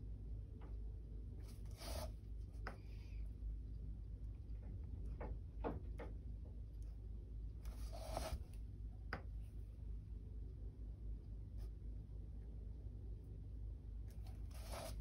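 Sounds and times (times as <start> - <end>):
low steady hum: 0.0 - 15.0
canvas scraping on mat: 1.5 - 2.2, 7.7 - 8.5, 14.4 - 15.0.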